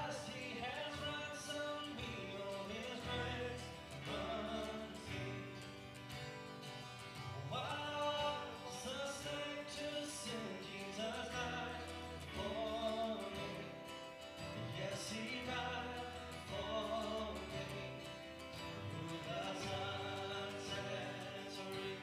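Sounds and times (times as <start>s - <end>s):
voices singing together: 0.0s - 6.3s, 7.4s - 22.0s
guitar: 0.0s - 22.0s.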